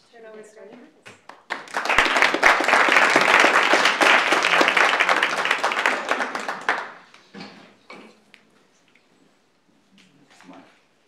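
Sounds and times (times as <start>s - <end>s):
audience applause: 1.4s - 7.2s.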